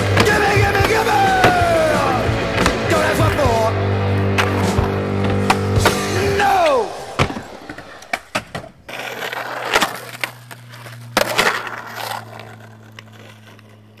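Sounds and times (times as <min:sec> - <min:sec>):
low hum: 0:00.0 - 0:11.0
skateboard trucks scraping curb: 0:00.0 - 0:14.0
skateboard wheels rolling: 0:00.0 - 0:14.0.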